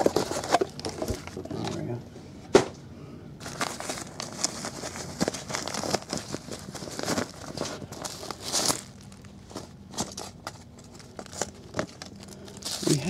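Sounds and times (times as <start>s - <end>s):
plastic wrap crinkling: 3.4s - 13.0s.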